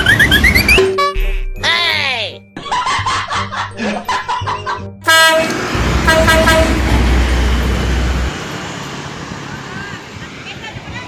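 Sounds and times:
children's music: 0.0s - 5.1s
vehicle horn blaring: 0.8s - 1.3s, 5.0s - 7.0s
heavy truck rumbling past: 5.0s - 11.0s.

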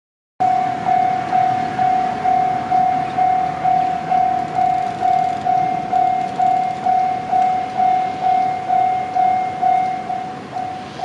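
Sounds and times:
level crossing warning bell: 0.4s - 11.0s.

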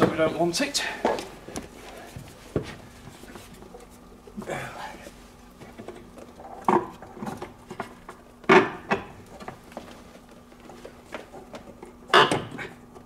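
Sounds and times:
knocks and clunks of metal part: 12.1s - 12.7s.

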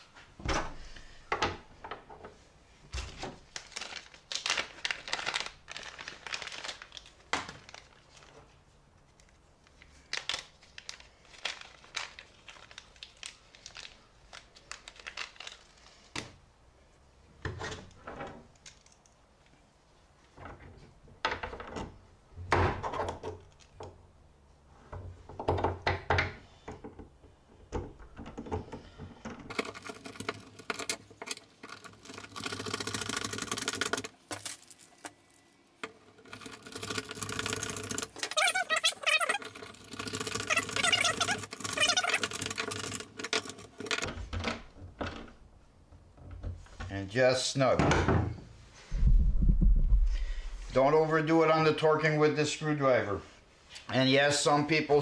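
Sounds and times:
screwdriver turning a screw: 36.2s - 43.6s.

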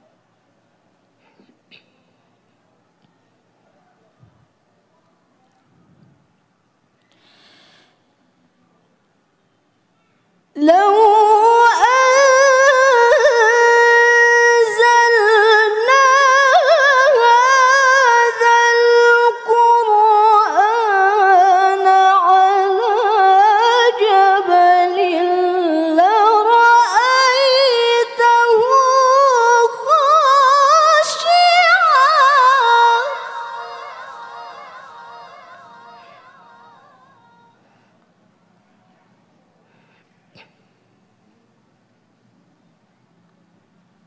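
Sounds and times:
woman chanting melodically: 10.6s - 37.6s.

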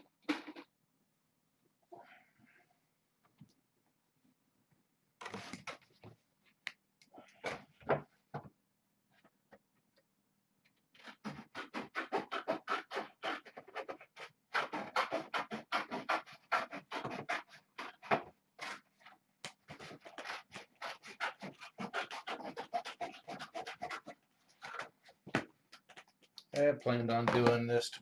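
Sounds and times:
rapid rough scratching: 19.7s - 25.0s.

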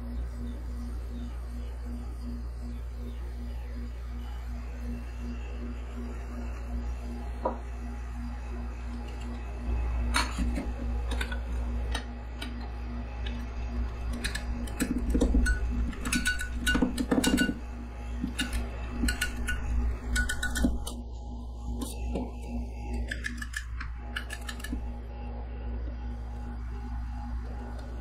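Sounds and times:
steady low hum: 0.0s - 28.0s
metal scrapers clicking on steel plate: 18.3s - 20.9s.

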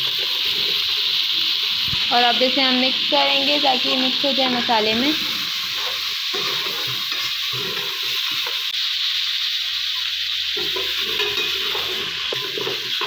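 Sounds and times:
metal spatula scraping a pot: 0.0s - 1.6s, 4.3s - 8.7s, 10.6s - 13.0s
meat sizzling in hot oil: 0.0s - 13.0s.

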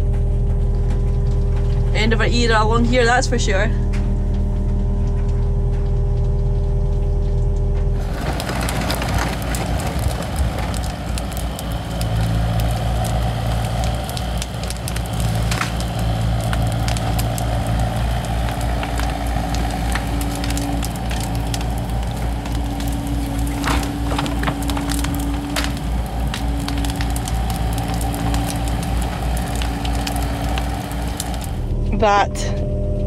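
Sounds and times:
bonfire crackling and popping: 0.0s - 32.2s
diesel excavator engine running: 0.0s - 33.0s
steady whine: 0.0s - 33.0s.

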